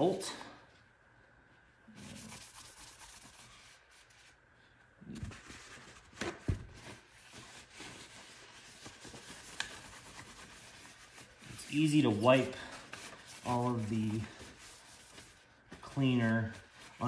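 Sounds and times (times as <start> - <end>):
paper towel wiping metal: 1.9 - 4.4, 6.8 - 17.0.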